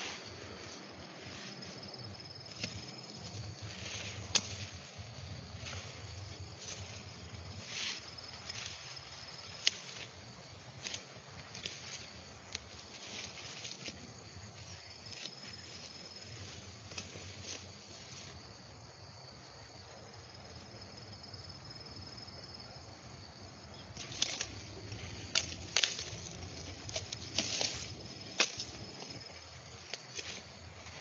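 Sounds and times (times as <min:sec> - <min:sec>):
plants rustling: 0:00.0 - 0:18.6, 0:23.6 - 0:31.0
sickle snapping stalks: 0:01.6 - 0:18.2, 0:23.9 - 0:31.0.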